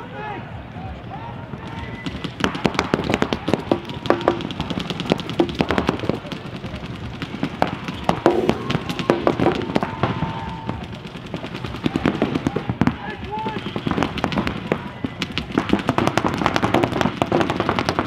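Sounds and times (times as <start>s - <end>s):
paintball markers firing: 1.6s - 18.0s.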